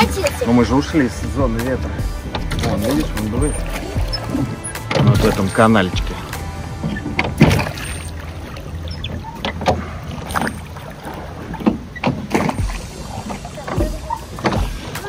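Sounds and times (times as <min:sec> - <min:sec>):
oars splashing in water: 0:00.0 - 0:15.0
oars knocking in oarlocks: 0:08.9 - 0:15.0.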